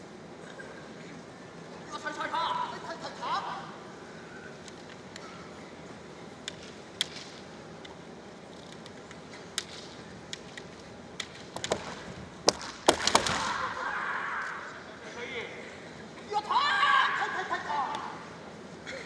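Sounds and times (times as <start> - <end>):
bamboo swords clicking: 4.6 - 5.4, 6.4 - 13.6
loud cracks of sword strikes: 11.7 - 13.8.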